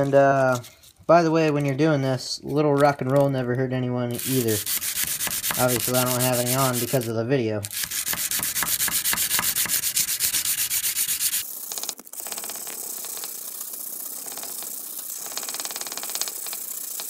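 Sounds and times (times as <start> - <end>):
sandpaper rubbing on steel blade: 4.2 - 11.7.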